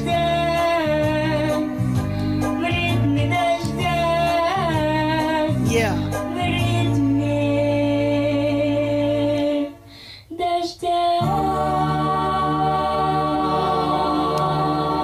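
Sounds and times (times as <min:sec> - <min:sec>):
girl singing slow blues: 0:02.5 - 0:11.5.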